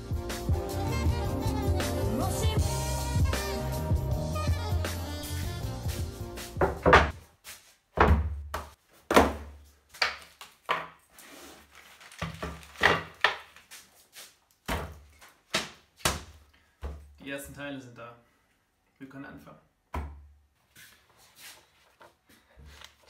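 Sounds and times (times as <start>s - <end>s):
objects thunking on wooden workbench: 6.6s - 7.2s, 8.0s - 9.6s
plastic wrapping crinkling: 10.2s - 15.5s.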